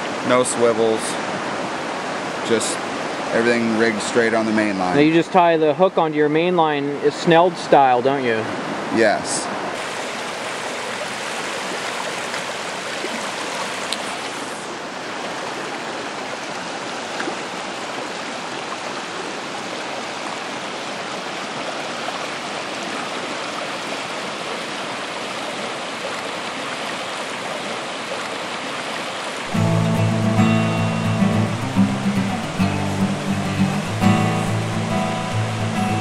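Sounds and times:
river rushing over rocks: 0:00.0 - 0:36.0.

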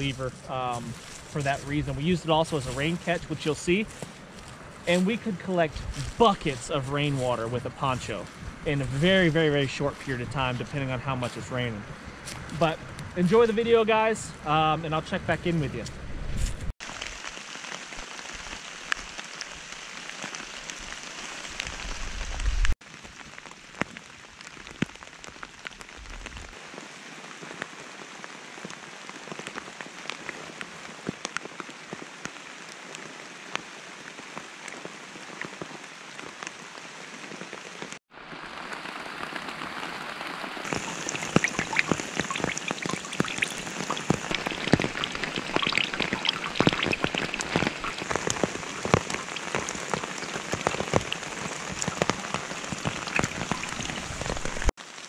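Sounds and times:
rain falling: 0:00.0 - 0:15.6, 0:16.8 - 0:55.0
water splashing into metal pan: 0:40.7 - 0:49.7.

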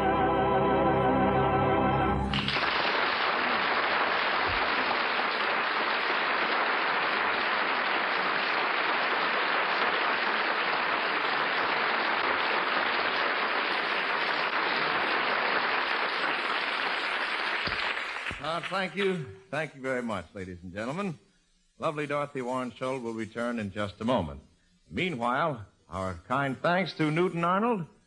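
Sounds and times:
audience applauding: 0:02.2 - 0:19.3.

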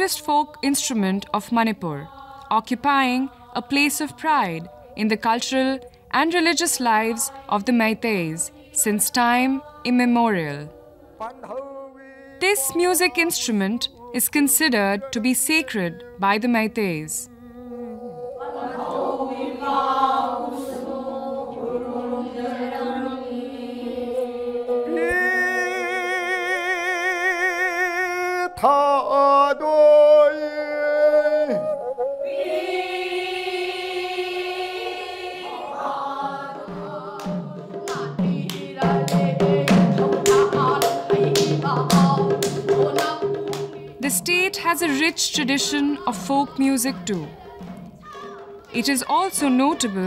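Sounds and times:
person singing: 0:00.0 - 0:20.5, 0:24.0 - 0:33.7.

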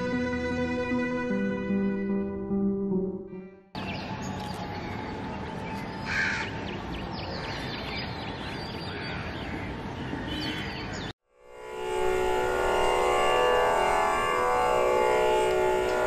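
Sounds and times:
small birds chirping: 0:03.8 - 0:11.1
crow cawing: 0:06.0 - 0:06.5.

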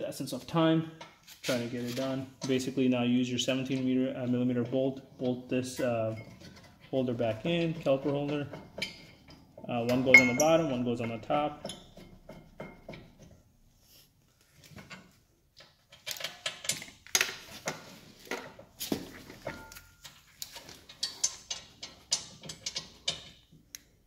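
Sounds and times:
metal clinks and knocks: 0:03.5 - 0:13.5, 0:14.7 - 0:23.6.

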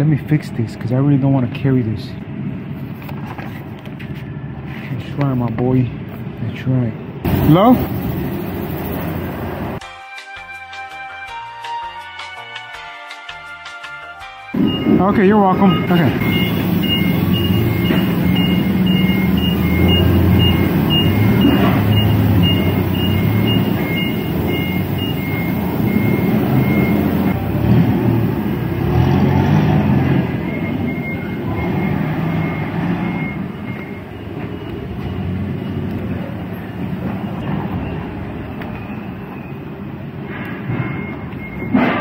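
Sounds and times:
low engine rumble: 0:07.2 - 0:09.8, 0:14.6 - 0:38.6
backup alarm beeping: 0:14.5 - 0:27.6, 0:29.7 - 0:42.0.

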